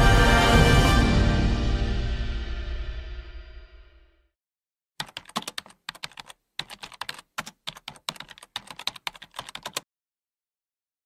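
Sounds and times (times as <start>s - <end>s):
music: 0.0s - 4.3s
keyboard typing clicks: 5.0s - 9.8s.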